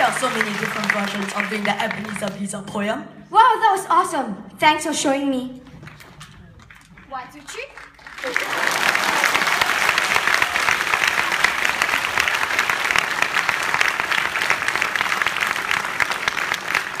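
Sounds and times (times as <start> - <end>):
audience applauding: 0.0 - 2.4, 5.7 - 17.0.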